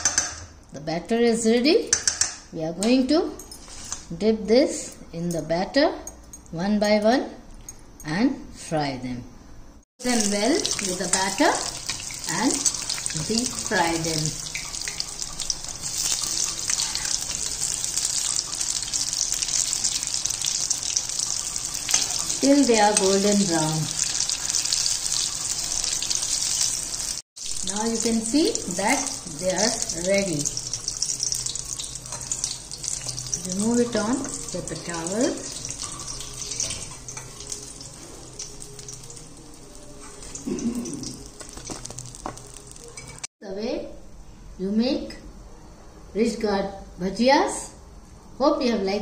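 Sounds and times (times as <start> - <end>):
frying in hot oil sizzling: 10.0 - 43.3.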